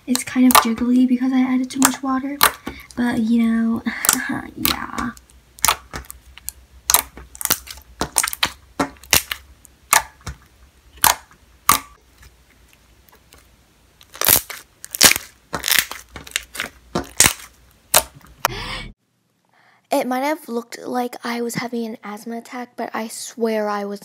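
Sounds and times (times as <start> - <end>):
wet slime popping and clicking: 0.1 - 0.8, 1.7 - 2.9, 4.0 - 10.4, 11.0 - 12.0, 14.0 - 18.2.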